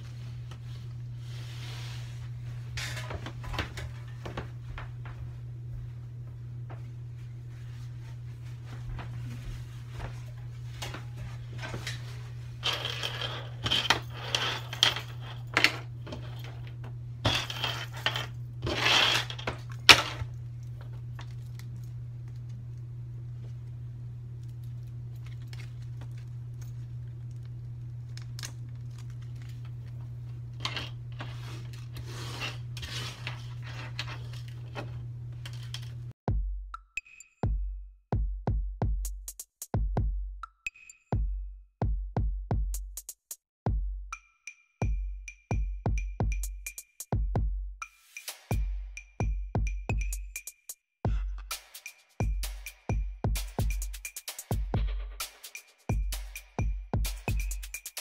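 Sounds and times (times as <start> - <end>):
steady low hum: 0.0 - 36.2
electronic music with drum beat: 36.3 - 58.0.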